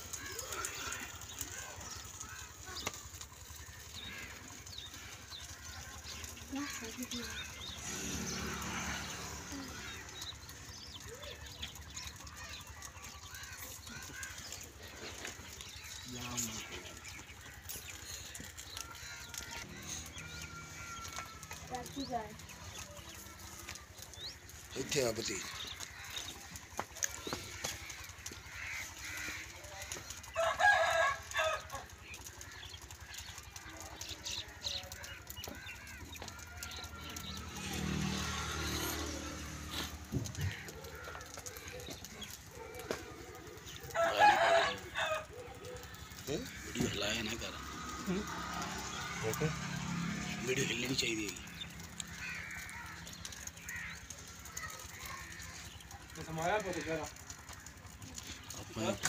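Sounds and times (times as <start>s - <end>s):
birds chirping: 0.0s - 59.0s
rooster crowing: 30.3s - 31.9s, 43.9s - 46.1s.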